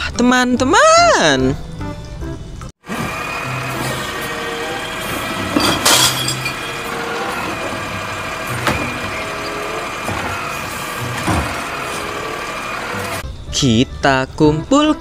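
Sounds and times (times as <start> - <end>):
garbage truck idling: 2.8 - 13.2
bin rattling as tipped: 5.2 - 12.2.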